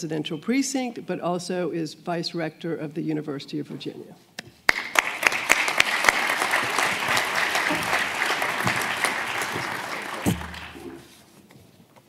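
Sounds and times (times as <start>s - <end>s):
audience applauding: 4.7s - 11.2s
low thump: 10.2s - 10.7s.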